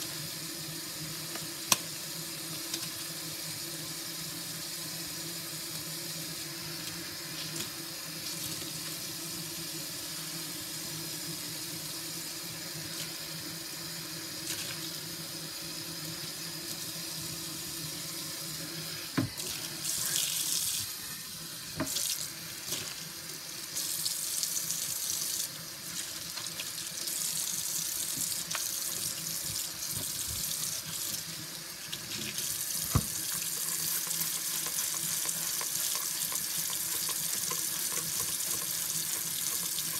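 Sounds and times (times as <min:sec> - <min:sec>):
tap water running into sink: 0:19.1 - 0:21.0, 0:21.7 - 0:39.9.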